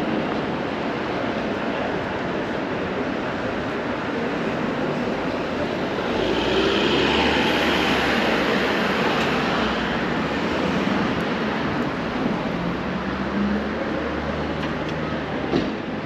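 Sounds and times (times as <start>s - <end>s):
car passing by: 5.8s - 11.2s.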